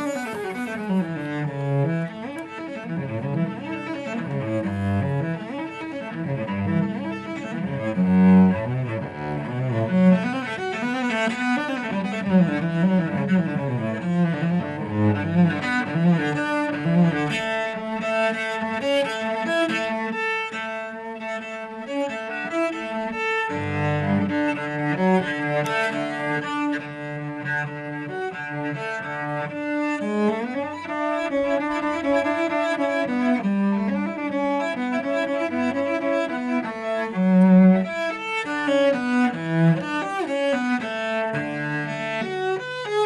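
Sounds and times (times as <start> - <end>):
bowed cello: 0.0 - 43.0.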